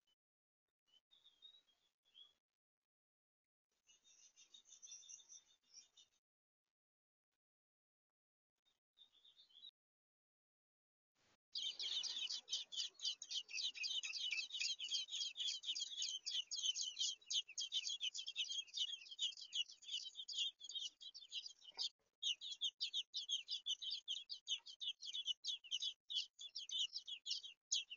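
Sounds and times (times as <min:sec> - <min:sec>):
nestlings squeaking: 0:11.8 - 0:27.4.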